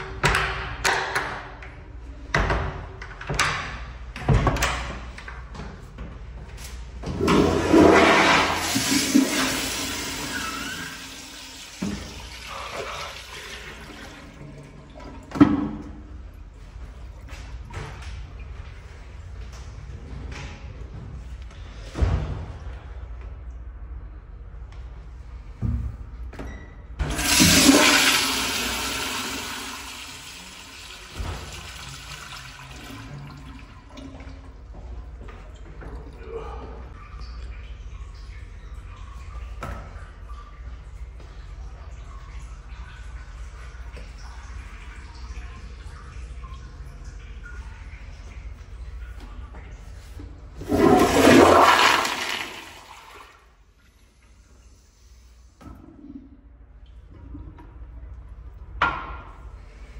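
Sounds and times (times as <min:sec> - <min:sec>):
toilet flushing: 0:07.0 - 0:16.8, 0:27.0 - 0:37.0, 0:41.0 - 0:54.4.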